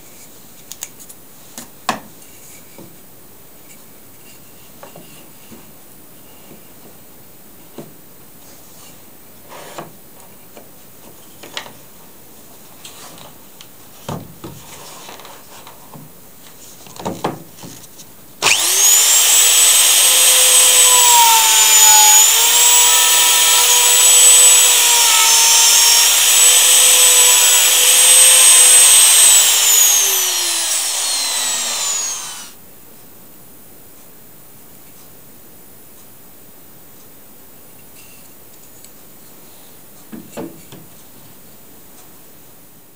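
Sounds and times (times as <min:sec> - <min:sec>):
router whining while cutting wood: 0:18.4 - 0:32.6.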